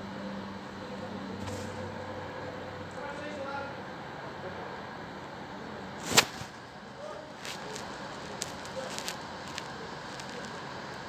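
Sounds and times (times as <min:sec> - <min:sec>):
steady background noise: 0:00.0 - 0:11.0.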